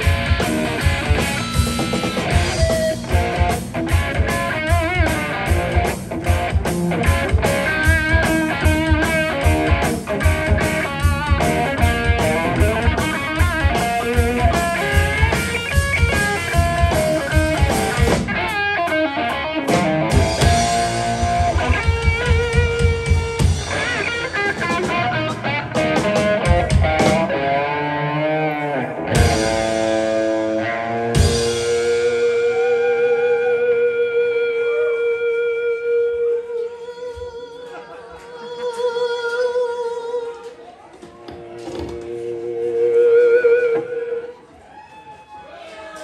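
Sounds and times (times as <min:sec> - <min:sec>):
drum kit: 0:00.0 - 0:27.6, 0:29.0 - 0:33.4
electric bass: 0:00.0 - 0:35.8
electric guitar lead: 0:00.0 - 0:37.4, 0:41.4 - 0:44.4.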